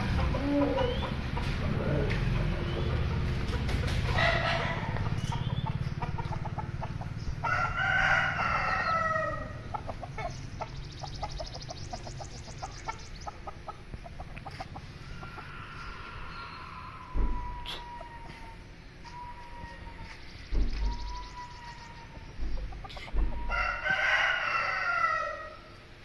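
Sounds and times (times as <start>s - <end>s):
chickens clucking: 0.0s - 25.8s
rooster crowing: 4.2s - 5.0s, 7.4s - 9.6s, 15.0s - 18.6s, 23.4s - 25.7s.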